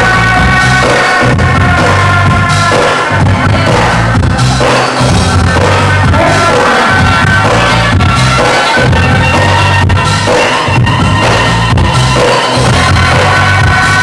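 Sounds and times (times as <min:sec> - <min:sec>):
person singing: 0:00.0 - 0:09.4, 0:12.6 - 0:14.0
loud dance music with bass: 0:00.0 - 0:14.0.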